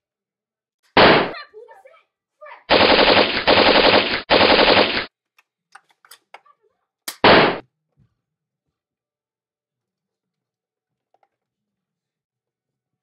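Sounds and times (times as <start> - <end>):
simulated machine-gun fire: 1.0 - 1.3, 2.7 - 5.1, 7.2 - 7.6.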